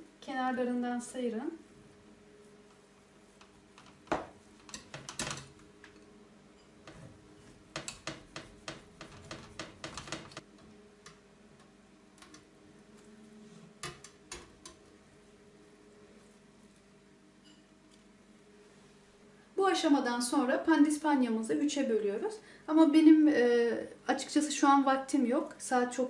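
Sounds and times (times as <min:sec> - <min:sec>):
knife tapping and scraping on metal: 0:06.6 - 0:10.4.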